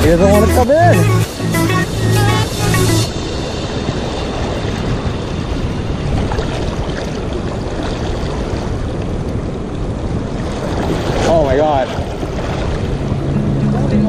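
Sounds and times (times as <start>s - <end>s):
river water rushing and splashing: 0.0s - 14.0s.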